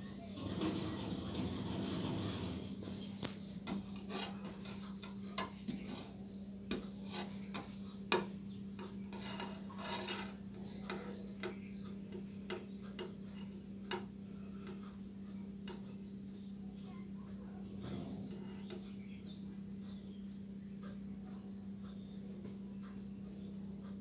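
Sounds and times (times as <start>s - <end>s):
steady low hum: 0.0s - 24.0s
wire leads clicking and rubbing: 0.4s - 11.7s.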